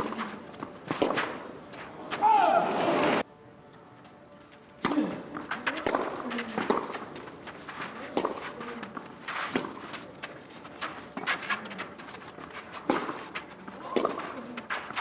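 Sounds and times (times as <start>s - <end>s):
tennis ball struck by rackets: 0.0s - 1.5s, 4.8s - 10.0s, 12.7s - 15.0s.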